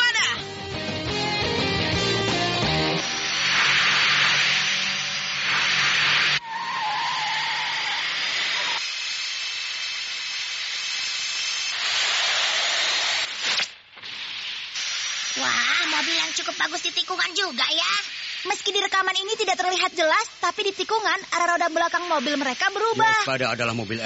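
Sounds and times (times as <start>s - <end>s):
toy racing cars whirring: 3.4s - 13.7s.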